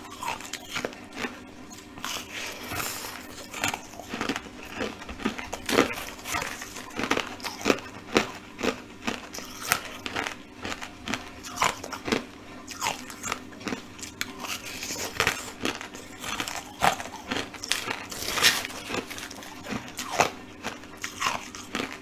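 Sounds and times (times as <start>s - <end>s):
person chewing crunchy ice: 0.0s - 22.0s.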